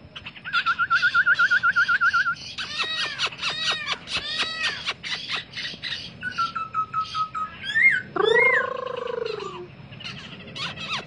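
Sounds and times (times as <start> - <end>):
songbirds chirping: 0.0 - 11.0
bird trill: 0.2 - 11.0
long mewing call: 7.6 - 11.0.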